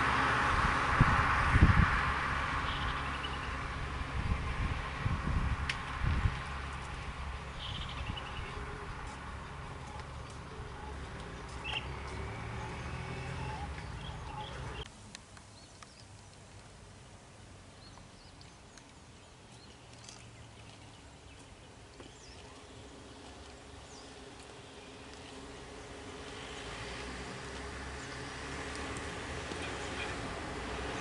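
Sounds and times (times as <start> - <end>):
car driving on road: 0.0 - 31.0
tuk tuk engine rumble: 0.0 - 31.0
bird chirps: 7.6 - 8.7, 10.7 - 12.0, 12.6 - 14.9.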